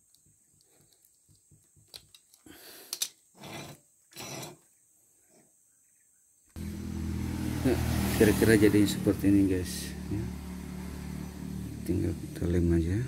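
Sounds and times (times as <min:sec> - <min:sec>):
knife scraping and rustling hose: 0:03.3 - 0:04.6
engine running loudly: 0:06.6 - 0:12.8.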